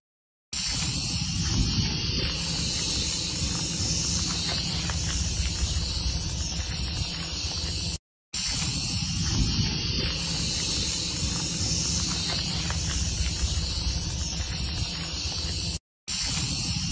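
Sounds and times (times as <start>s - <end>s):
rattlesnake rattling: 0.6s - 16.9s
low rumble: 1.2s - 7.9s, 9.1s - 15.7s.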